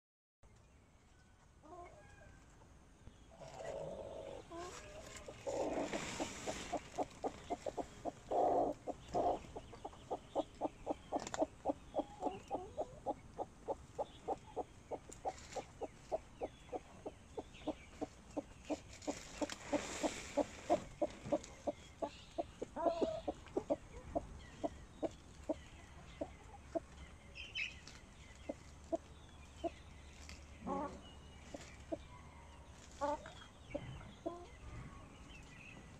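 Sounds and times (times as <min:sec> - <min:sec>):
hens clucking: 0:03.4 - 0:27.0.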